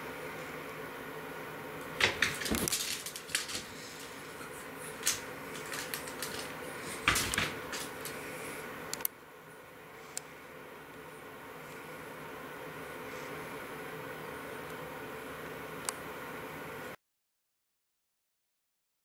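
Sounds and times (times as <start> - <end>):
faint steady hum: 0.0 - 17.0
claws scrabbling: 2.0 - 8.4.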